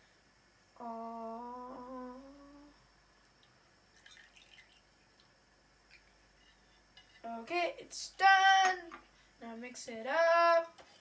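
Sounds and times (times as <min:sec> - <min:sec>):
person humming: 0:00.8 - 0:02.8.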